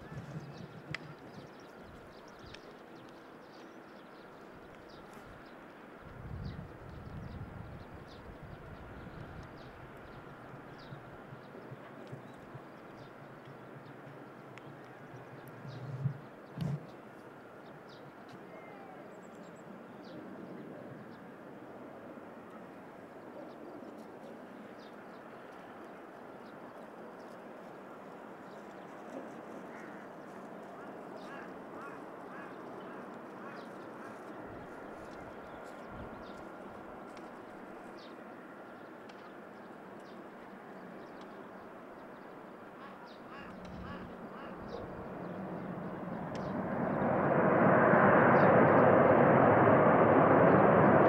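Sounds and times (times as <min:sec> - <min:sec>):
distant jet engines: 0:00.0 - 0:51.0
low outdoor background noise: 0:00.0 - 0:51.0
small birds chirping: 0:28.0 - 0:40.2.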